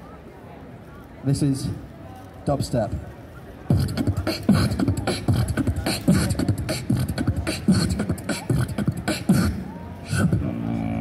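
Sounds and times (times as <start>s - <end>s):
beatboxing: 3.7s - 11.0s.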